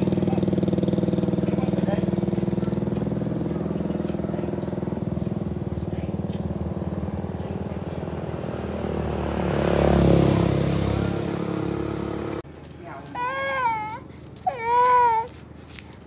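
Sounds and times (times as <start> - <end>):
small engine running: 0.0 - 12.4.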